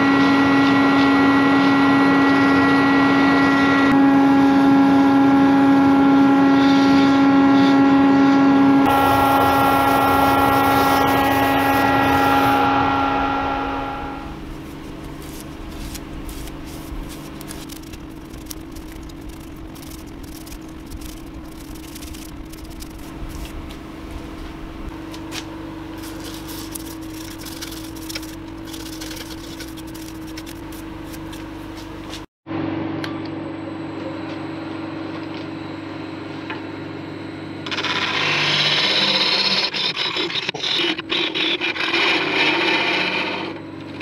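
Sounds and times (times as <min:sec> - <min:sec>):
wood lathe motor hum: 0:08.8 - 0:14.4
wood crackling and ticking: 0:17.3 - 0:23.5.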